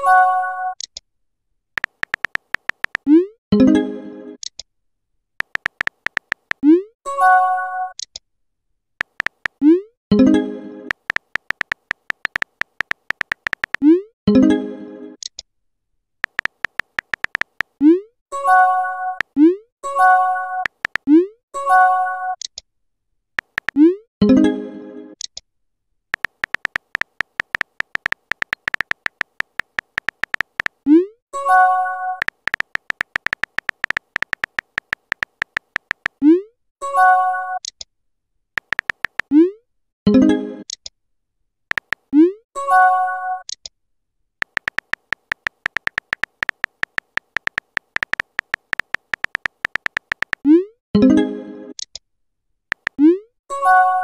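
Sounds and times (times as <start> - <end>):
phone keyboard typing clicks: 1.8 - 3.1, 5.4 - 6.6, 9.0 - 9.6, 10.9 - 13.9, 16.2 - 17.8, 20.6 - 21.1, 23.4 - 23.8, 26.2 - 30.8, 32.2 - 36.2, 38.6 - 39.3, 41.7 - 42.1, 44.4 - 50.5, 52.7 - 53.0.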